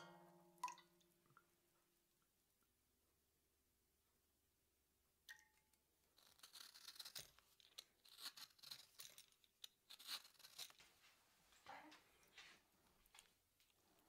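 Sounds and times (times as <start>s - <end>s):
peeler rasping on orange: 6.2s - 9.2s.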